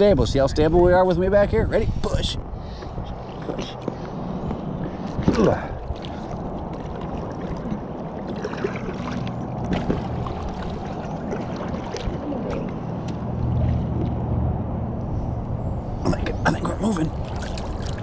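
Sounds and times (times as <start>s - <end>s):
paddles splashing in water: 4.9s - 14.3s, 17.2s - 18.0s.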